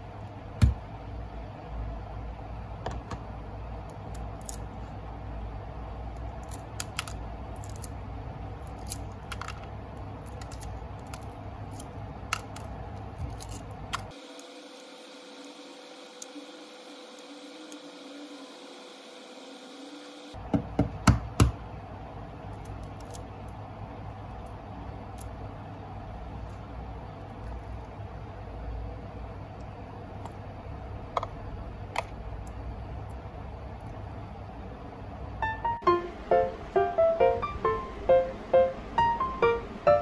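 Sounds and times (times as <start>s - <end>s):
egg shell crackling: 6.1s - 14.1s.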